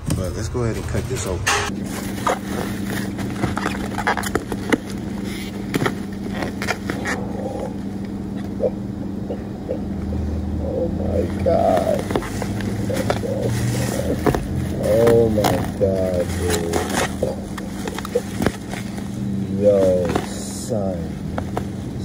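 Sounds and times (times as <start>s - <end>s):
steady low hum: 0.0s - 22.0s
bubble wrap crinkling: 1.8s - 7.2s, 11.6s - 20.5s.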